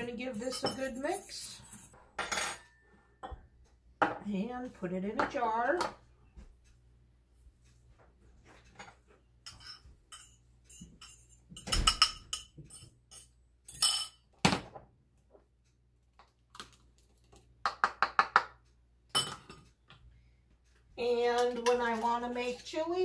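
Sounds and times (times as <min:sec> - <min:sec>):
metal spoon scraping ceramic bowl: 0:00.0 - 0:02.6, 0:09.4 - 0:13.3, 0:21.4 - 0:22.9.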